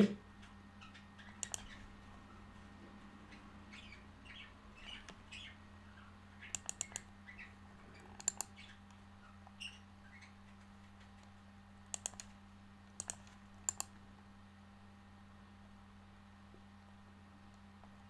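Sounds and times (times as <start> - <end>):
low steady hum: 0.0 - 18.0
computer mouse clicks: 1.4 - 1.8, 6.5 - 7.1, 8.0 - 9.0, 11.9 - 12.4, 13.0 - 14.0.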